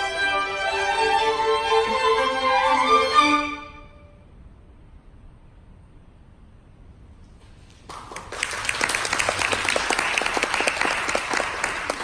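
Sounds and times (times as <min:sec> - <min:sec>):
audience applause: 0:07.9 - 0:12.0.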